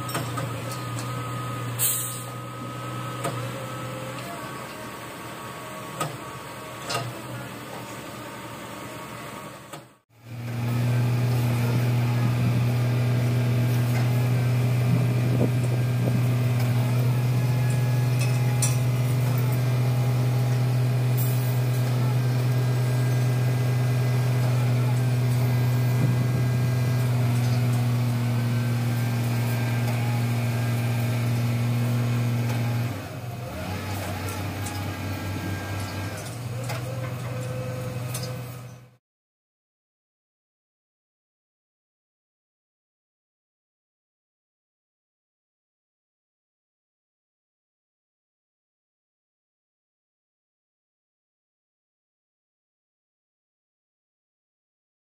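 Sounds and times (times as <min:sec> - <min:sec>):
construction site noise: 0:00.0 - 0:39.0
diesel crane engine droning: 0:00.0 - 0:39.0.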